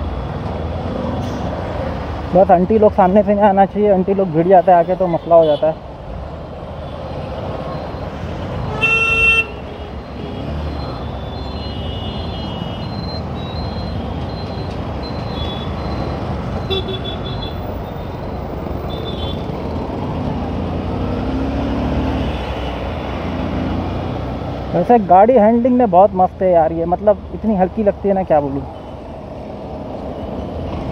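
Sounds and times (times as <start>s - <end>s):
motorcycle engine and road noise: 0.0s - 30.9s.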